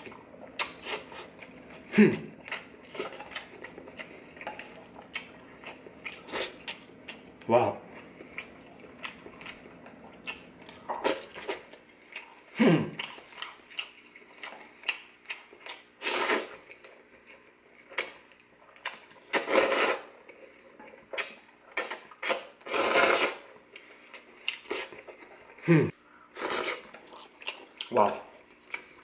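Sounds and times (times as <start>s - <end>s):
wet chewing: 0.0s - 25.6s, 26.4s - 29.0s
noodles slurped: 16.0s - 16.6s, 19.3s - 20.1s, 21.2s - 23.5s, 26.4s - 27.2s.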